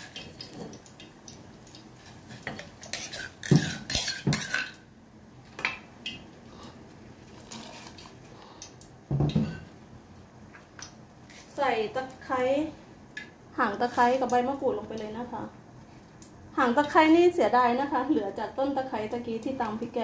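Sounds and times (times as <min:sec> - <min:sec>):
dishes and utensils clinking: 0:02.4 - 0:04.8.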